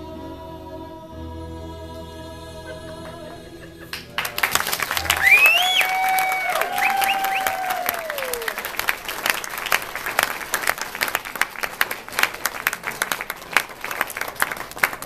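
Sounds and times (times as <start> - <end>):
audience applauding: 3.9 - 15.0.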